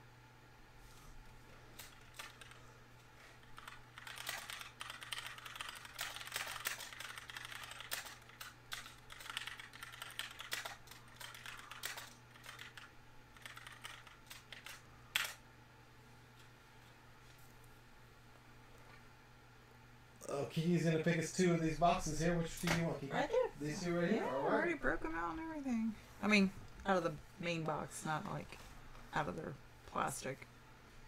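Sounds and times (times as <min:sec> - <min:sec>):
faint low hum: 0:00.0 - 0:31.0
typing on keyboard: 0:01.8 - 0:02.6, 0:03.5 - 0:15.4.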